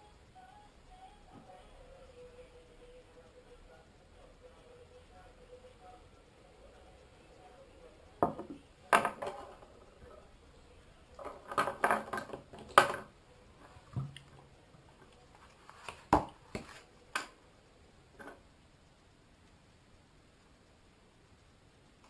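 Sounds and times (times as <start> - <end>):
objects knocking on wooden table: 8.2 - 9.7, 11.2 - 13.1.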